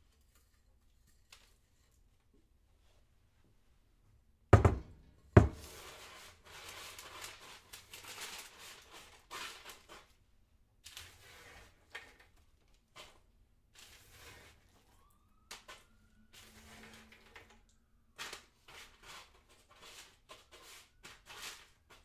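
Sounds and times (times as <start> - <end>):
rustling and scraping: 0.0 - 3.1, 5.5 - 10.2, 18.2 - 22.0.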